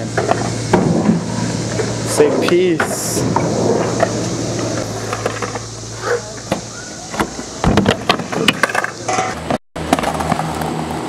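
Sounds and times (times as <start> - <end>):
steady low hum: 0.0 - 9.6
skateboard clacking and rattling: 7.2 - 10.7.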